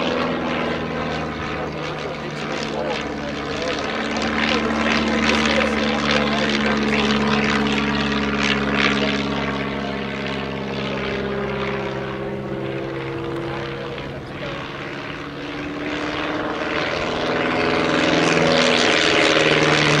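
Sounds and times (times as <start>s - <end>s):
propeller plane engine droning: 0.0s - 20.0s.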